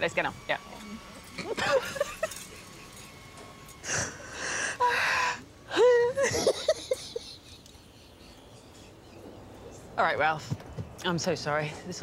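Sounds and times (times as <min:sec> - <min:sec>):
women laughing: 0:01.4 - 0:05.1, 0:05.7 - 0:09.7
wheezing gasping breaths: 0:03.8 - 0:05.5.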